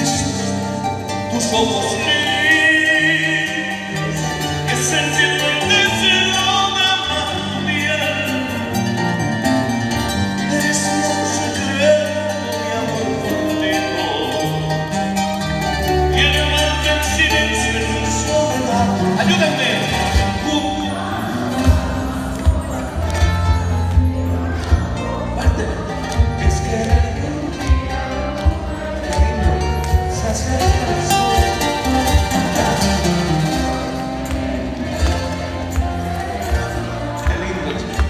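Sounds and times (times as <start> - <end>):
man singing into a microphone: 0.0 - 8.8, 10.4 - 15.0, 16.0 - 33.4
plucked strings: 0.0 - 38.0.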